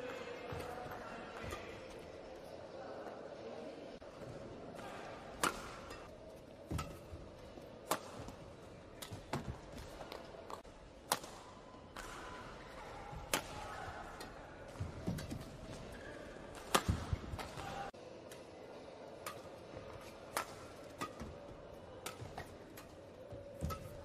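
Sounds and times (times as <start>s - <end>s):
faint arena background: 0.0s - 24.0s
rackets striking shuttlecock: 5.3s - 17.9s, 19.2s - 24.0s.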